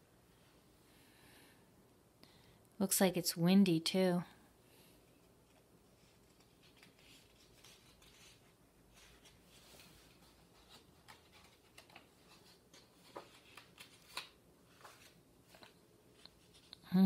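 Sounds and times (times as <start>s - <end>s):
book page turning: 5.4s - 16.8s.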